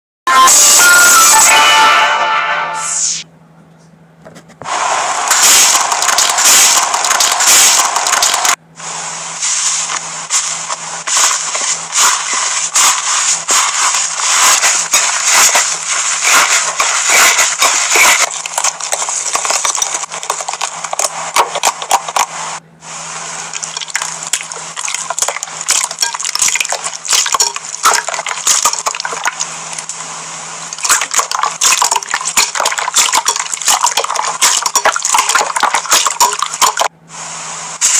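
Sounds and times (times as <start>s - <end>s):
slime squishing and crackling: 23.5s - 30.0s, 30.8s - 36.9s.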